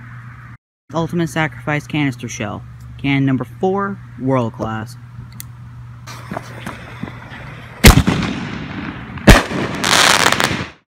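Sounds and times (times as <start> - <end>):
firework crackling: 7.8 - 10.8
firework launch bang: 7.8 - 10.8.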